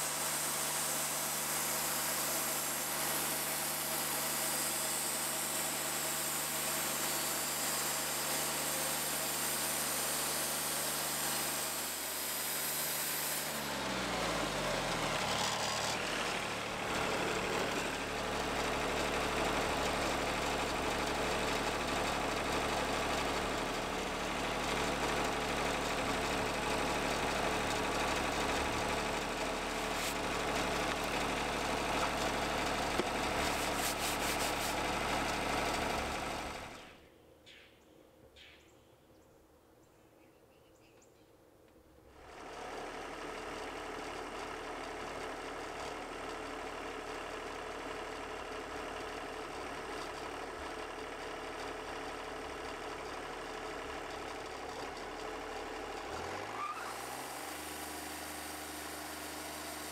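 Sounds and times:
band saw blade cutting log: 0.0 - 18.6, 26.3 - 36.9, 56.2 - 59.9
engine drone: 0.0 - 37.0, 53.9 - 59.9.

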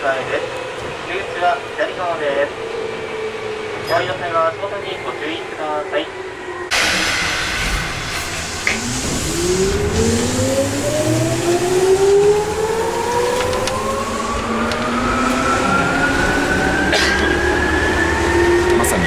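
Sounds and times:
train car rumble: 0.0 - 19.0
electric train motor whine: 6.3 - 16.8.

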